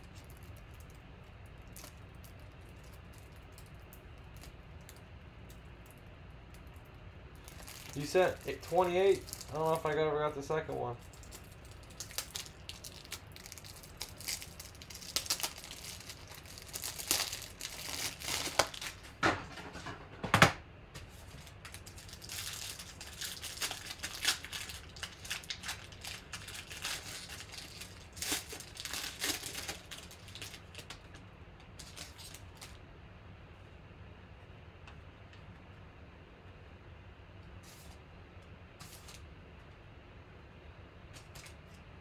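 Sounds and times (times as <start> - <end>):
foil pack crinkling and tearing: 0.0 - 6.0, 7.4 - 19.2, 21.2 - 32.8.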